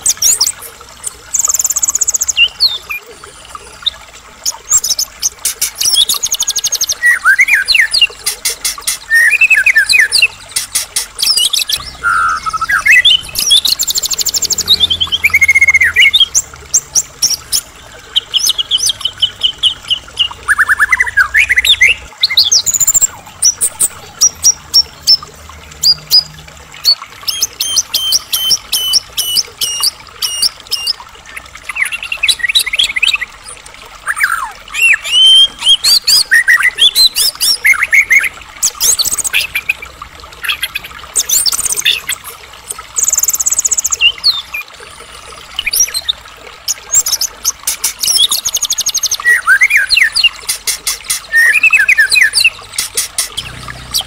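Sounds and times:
songbird singing trills and whistles: 5.6s - 10.6s, 11.2s - 16.4s, 26.8s - 31.0s, 31.7s - 39.8s, 47.9s - 54.0s.

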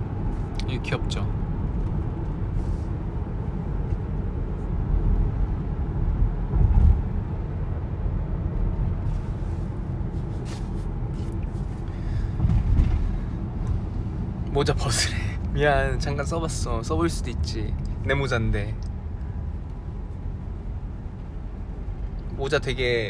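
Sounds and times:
car cabin road noise: 0.0s - 23.0s.

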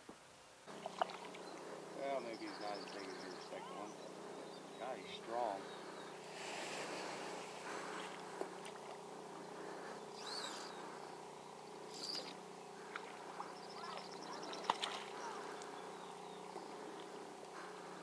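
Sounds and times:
fish splashing in water: 12.8s - 15.7s.

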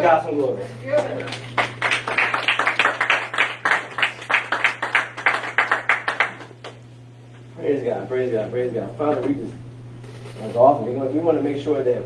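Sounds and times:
congregation clapping: 1.2s - 6.8s.

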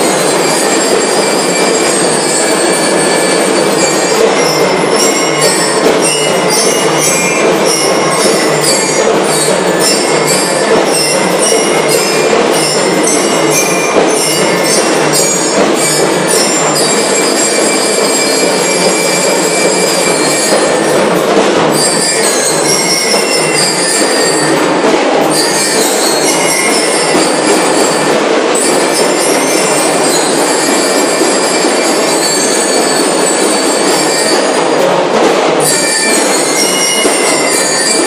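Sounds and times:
bell lyres ringing: 0.0s - 38.0s
steady drumming: 0.0s - 38.0s.

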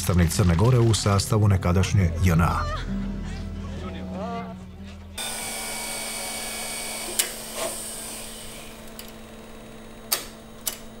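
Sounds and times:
tape machine whirring: 5.2s - 11.0s.

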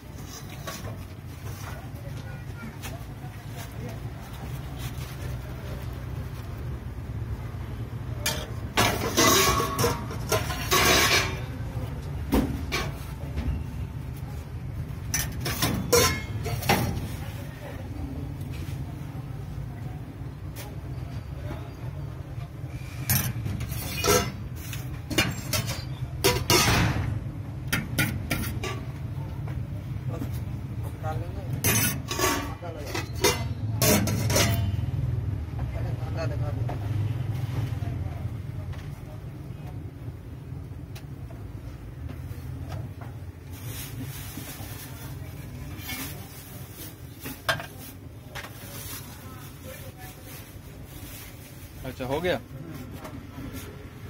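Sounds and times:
metal scrape: 0.0s - 1.7s, 8.3s - 11.6s, 22.7s - 26.9s, 31.6s - 34.9s
metal spoons clinking on bowls: 8.3s - 11.5s, 15.2s - 16.7s, 31.6s - 34.8s.

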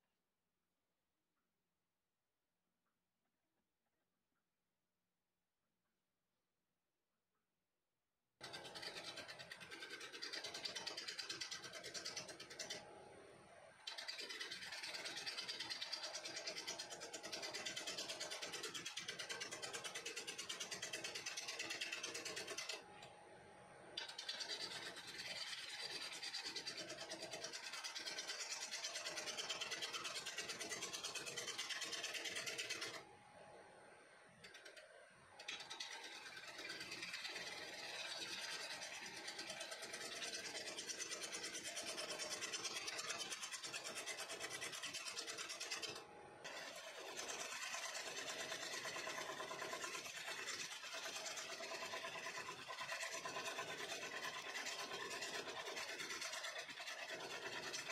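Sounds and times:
wood lathe running: 8.4s - 12.8s, 13.7s - 23.1s, 24.0s - 33.1s, 34.4s - 57.9s
gouge cutting wood hissing: 46.5s - 57.8s.

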